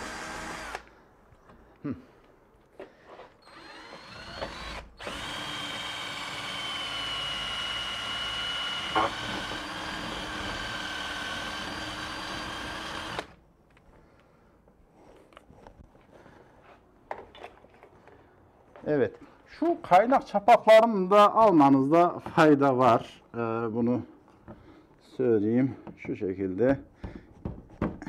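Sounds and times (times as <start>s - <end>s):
cordless drill running: 0.0s - 0.9s, 3.4s - 13.4s.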